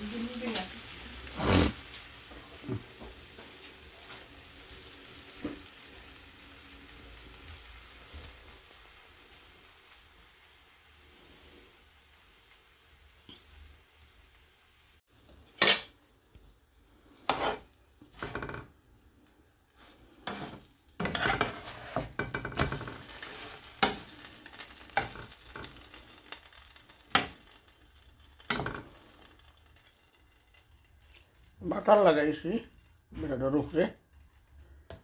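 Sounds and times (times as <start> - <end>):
utensil scraping frying pan: 0.0 - 8.8, 15.2 - 16.0, 16.8 - 18.8, 19.7 - 33.8
bread sizzling in butter: 0.0 - 35.0.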